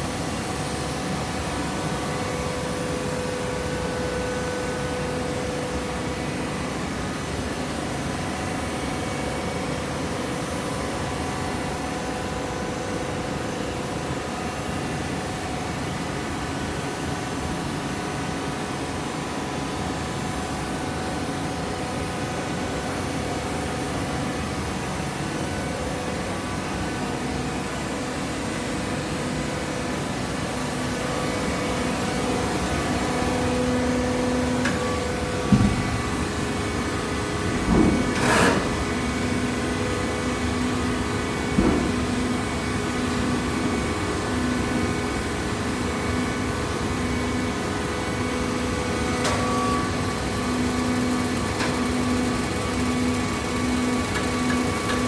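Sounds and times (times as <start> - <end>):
baler machine hum: 19.9 - 55.0.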